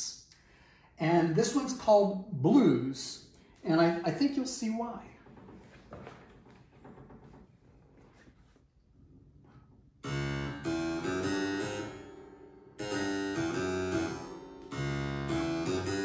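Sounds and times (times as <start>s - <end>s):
harpsichord playing blues chords: 10.0s - 16.0s.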